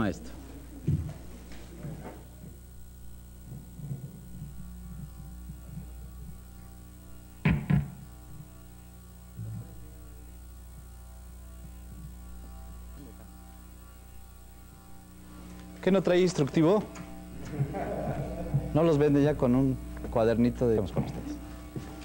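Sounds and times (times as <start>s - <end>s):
electrical mains hum: 0.0s - 22.0s
low thud: 7.4s - 8.0s
sharp thumps: 7.4s - 8.2s.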